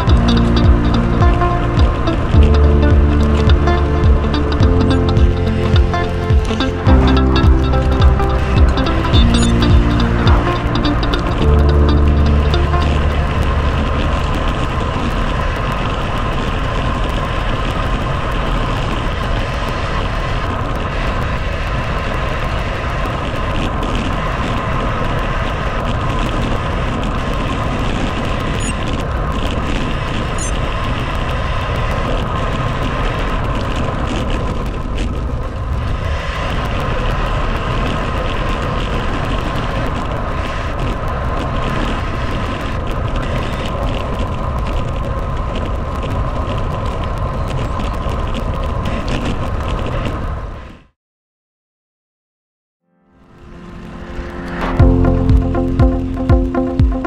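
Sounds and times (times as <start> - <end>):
low rumble: 0.0 - 19.3, 53.2 - 57.0
road noise: 0.0 - 49.6
wind rushing on microphone: 0.0 - 50.9.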